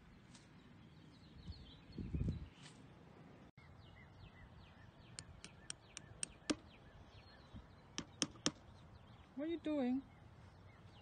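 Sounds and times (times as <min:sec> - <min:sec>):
small birds chirping: 0:00.0 - 0:11.0
hammer tapping stakes: 0:08.0 - 0:08.6.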